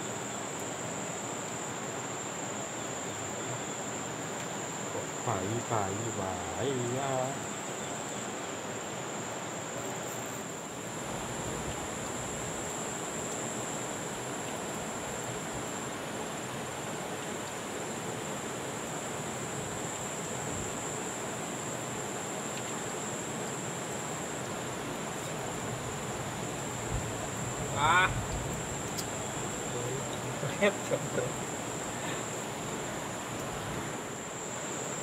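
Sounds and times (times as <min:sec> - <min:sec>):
river flowing: 0:00.0 - 0:35.0
high-pitched insect drone: 0:04.9 - 0:08.1, 0:25.1 - 0:35.0.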